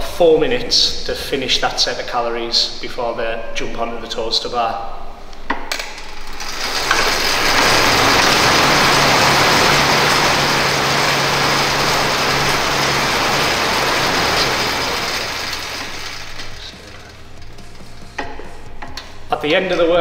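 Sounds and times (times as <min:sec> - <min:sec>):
air bike fan whooshing: 0:06.2 - 0:19.3.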